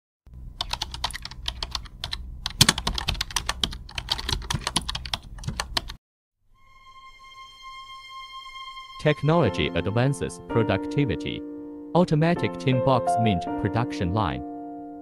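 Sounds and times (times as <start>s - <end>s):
steady musical tone: 6.5s - 14.9s.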